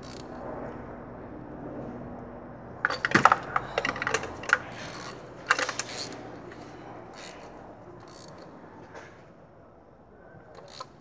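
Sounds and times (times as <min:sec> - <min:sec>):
hand ratchet clicking: 0:00.0 - 0:00.3, 0:03.7 - 0:08.4, 0:10.6 - 0:11.0.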